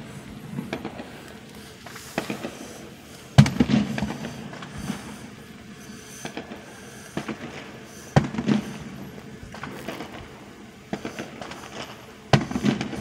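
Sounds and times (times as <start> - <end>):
small fireworks pops: 0.2 - 5.1, 6.2 - 13.0
fireworks bangs: 6.2 - 13.0.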